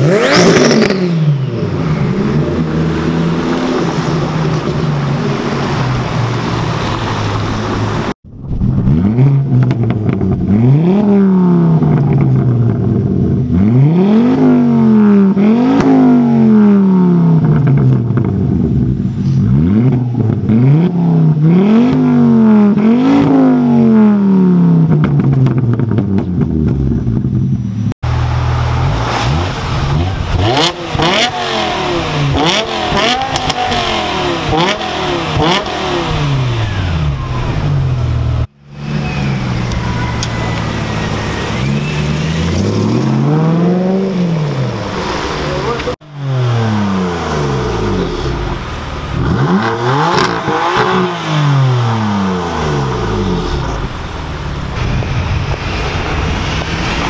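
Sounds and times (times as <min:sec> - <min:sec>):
car engine revving: 0:00.0 - 0:57.0
car engine revving in quick blips: 0:28.2 - 0:57.0.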